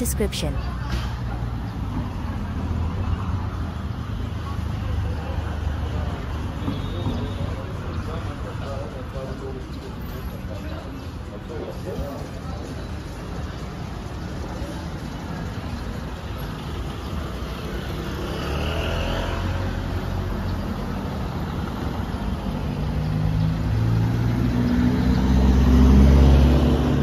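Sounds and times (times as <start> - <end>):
road traffic passing: 0.0 - 27.0
vehicle engine approaching: 17.1 - 27.0.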